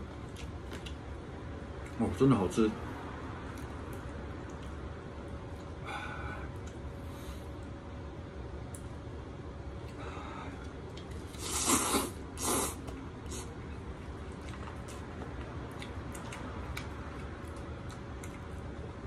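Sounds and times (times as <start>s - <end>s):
chewing clicks: 3.5s - 4.8s, 12.8s - 18.9s
hissing noodle slurps: 11.3s - 13.5s.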